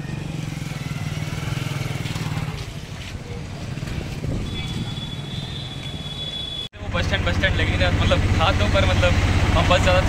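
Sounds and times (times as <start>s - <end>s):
street noise: 0.0s - 10.0s.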